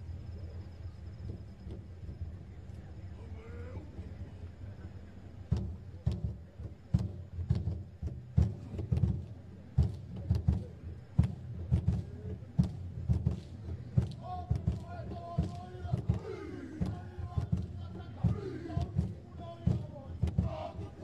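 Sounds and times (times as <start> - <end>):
low steady hum: 0.0 - 21.0
large skin drums beating: 5.5 - 21.0.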